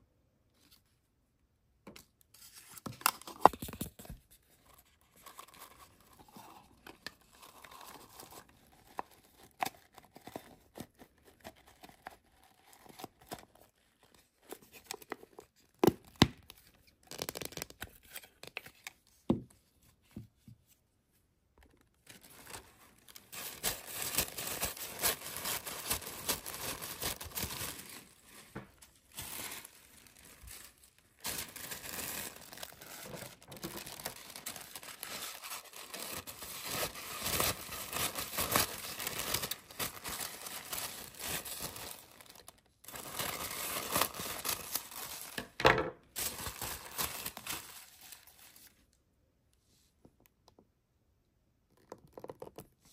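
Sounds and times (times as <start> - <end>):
tissue paper crinkling: 22.0 - 45.4, 46.2 - 48.8.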